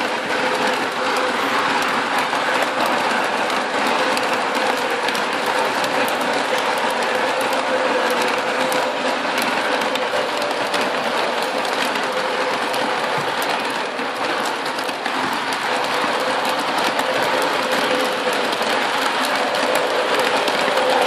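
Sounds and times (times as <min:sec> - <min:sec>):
model train wheels rattling: 0:00.0 - 0:21.0.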